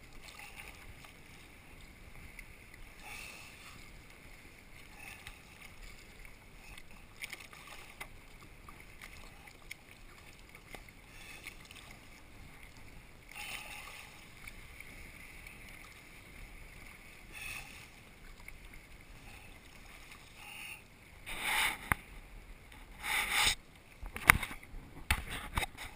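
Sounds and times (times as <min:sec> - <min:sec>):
kayak paddle splashing in water: 0:00.0 - 0:20.4.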